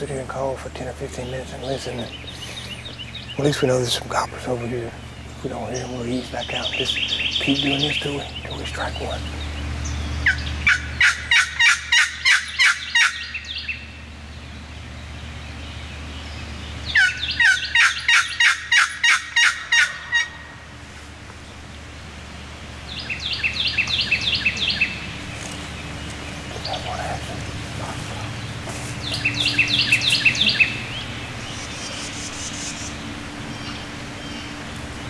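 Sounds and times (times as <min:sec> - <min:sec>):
turkey call yelps: 0:10.2 - 0:13.9, 0:16.9 - 0:20.7, 0:29.1 - 0:33.0.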